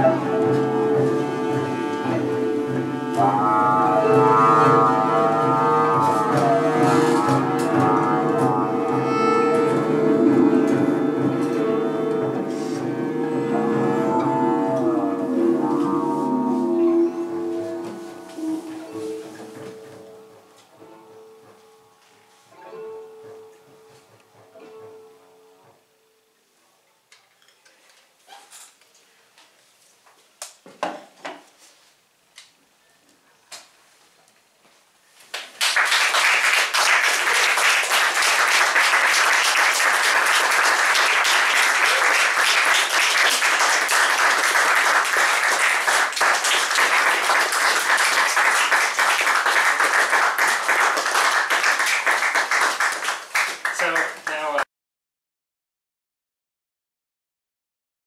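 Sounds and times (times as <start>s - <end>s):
audience applause: 35.4s - 54.6s.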